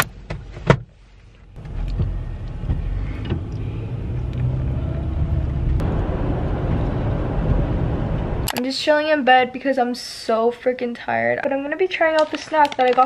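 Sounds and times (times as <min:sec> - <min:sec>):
car engine rumble inside cabin: 0:00.0 - 0:08.5.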